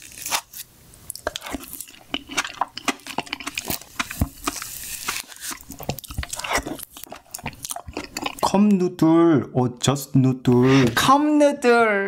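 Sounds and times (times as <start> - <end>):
wet mouth eating sounds: 1.1 - 8.6.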